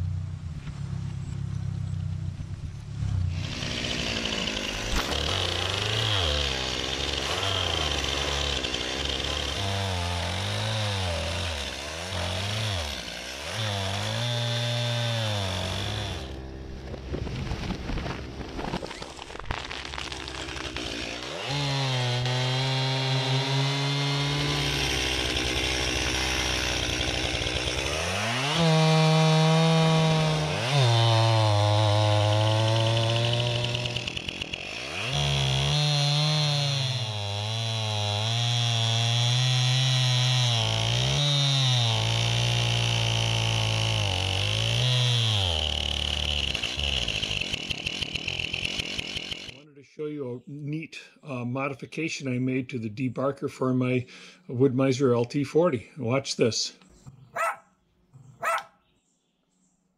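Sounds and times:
chainsaw cutting wood: 3.1 - 49.7, 58.4 - 58.7
chainsaw engine revving: 3.1 - 49.7.

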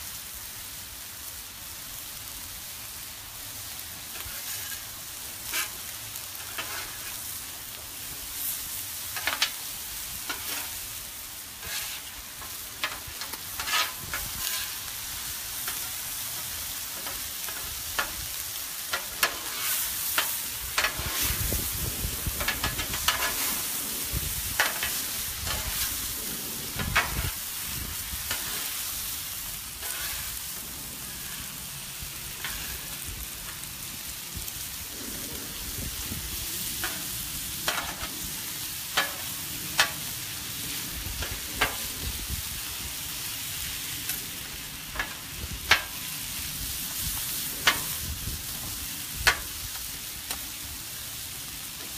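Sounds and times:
food sizzling on griddle: 0.0 - 51.9
metal spatulas scraping: 4.2 - 4.8, 5.5 - 5.8, 6.4 - 7.2, 10.2 - 10.8, 11.6 - 14.9, 18.9 - 21.5, 22.4 - 23.8, 28.3 - 28.8, 29.8 - 30.4, 32.4 - 33.0.

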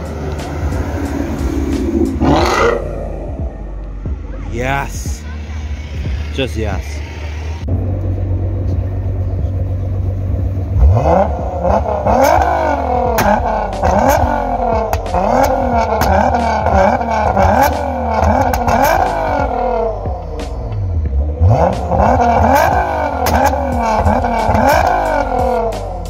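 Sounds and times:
car engine idling and revving: 0.0 - 26.0
sharp exhaust cracks: 7.2 - 26.0.

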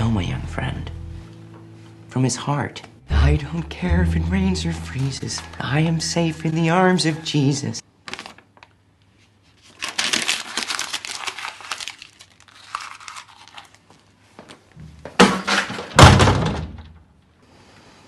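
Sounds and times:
paper rustling and crumpling: 8.0 - 14.6.

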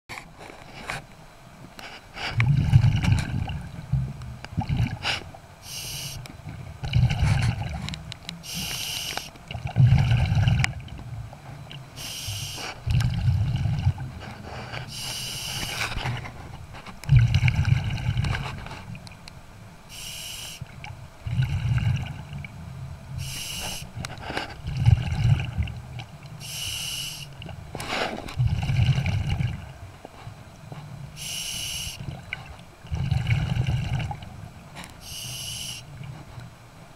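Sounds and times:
low rumble of exhaled bubbles: 2.2 - 5.5, 6.2 - 8.5, 9.4 - 12.0, 12.7 - 19.2, 20.6 - 26.4, 27.4 - 31.2, 32.0 - 34.8
regulator hiss on inhalation: 5.6 - 6.2, 8.4 - 9.3, 12.0 - 12.8, 14.9 - 15.8, 19.9 - 20.6, 23.2 - 23.9, 26.4 - 27.4, 31.2 - 32.0, 35.0 - 35.9.

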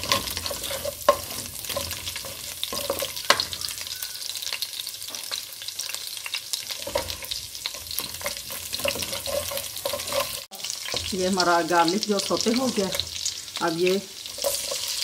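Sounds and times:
ladle scraping and tapping pan: 0.0 - 3.6, 6.8 - 10.5
garlic sizzling in hot oil: 0.0 - 15.0.

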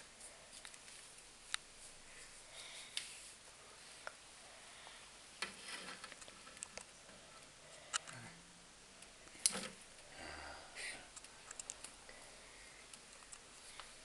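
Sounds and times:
phone clicks and rustles: 5.4 - 7.0.

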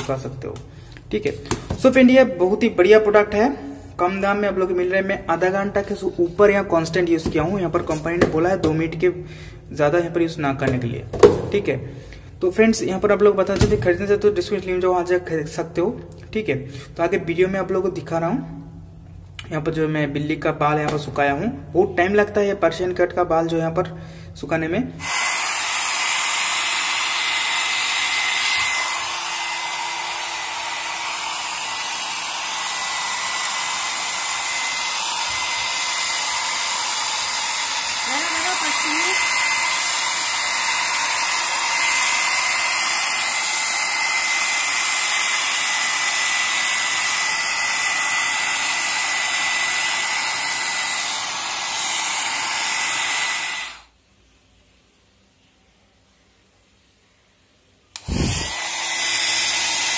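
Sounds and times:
hair dryer running: 25.0 - 53.9, 58.0 - 59.9.

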